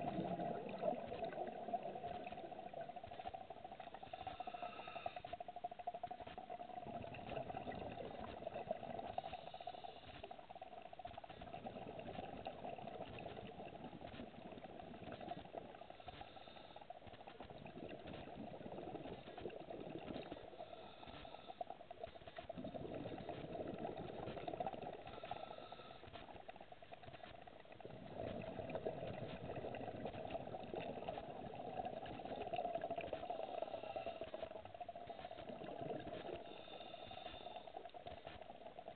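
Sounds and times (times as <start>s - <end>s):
exhaled bubbles bubbling: 0.0s - 38.9s
steady underwater hum: 0.0s - 38.9s
diver breathing through regulator: 3.9s - 5.5s, 15.0s - 17.2s, 18.1s - 26.4s, 27.1s - 38.5s.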